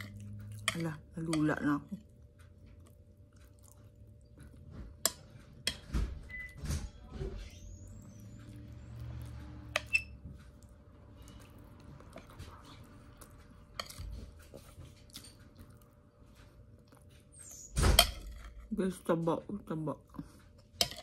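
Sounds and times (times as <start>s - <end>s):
close-up chewing: 2.0s - 5.6s, 8.4s - 17.5s.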